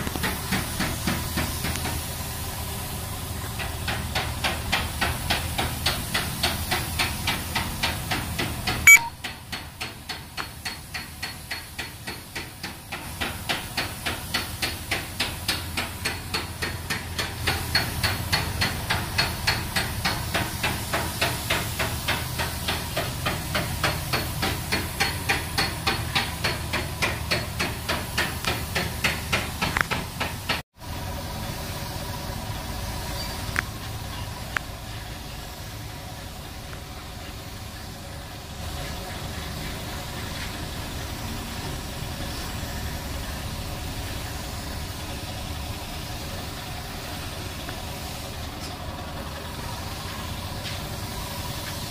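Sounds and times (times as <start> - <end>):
paint spray gun hissing: 43.8 - 51.9.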